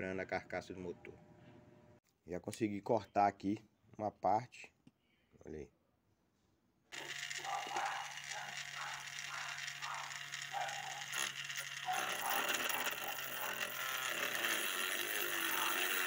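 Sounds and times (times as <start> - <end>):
rotary tool grinding metal: 6.9 - 16.0.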